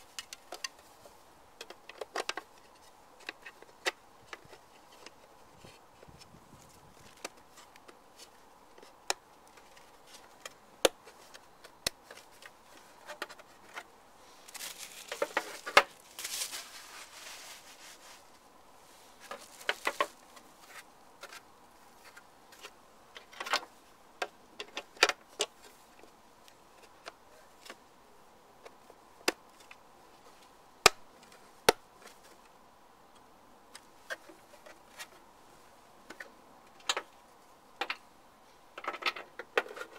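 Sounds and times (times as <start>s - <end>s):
rustling: 0.0s - 23.9s
hard plastic parts clicking: 1.6s - 5.2s.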